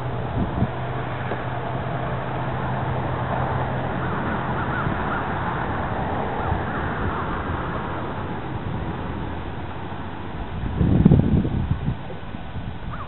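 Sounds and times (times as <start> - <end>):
low hum: 0.0 - 13.0
wind noise: 0.0 - 13.0
crows cawing: 3.9 - 5.7.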